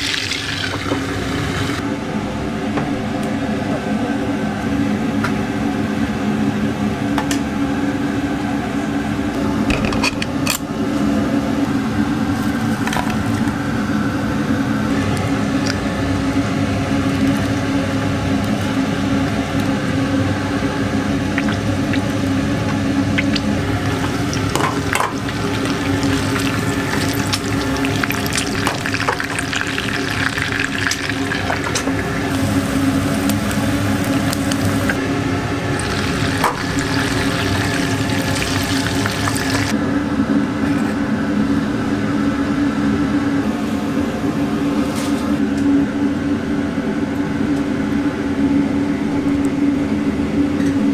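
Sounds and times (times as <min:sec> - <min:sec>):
egg sizzling in oil: 0:00.0 - 0:01.8, 0:21.3 - 0:35.0, 0:35.7 - 0:39.7
oil crackling: 0:23.1 - 0:35.0, 0:35.7 - 0:39.7.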